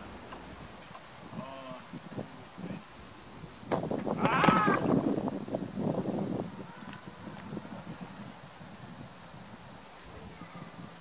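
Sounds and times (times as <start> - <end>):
wind buffeting microphone: 0.0 - 11.0
faint thuds: 3.7 - 4.8.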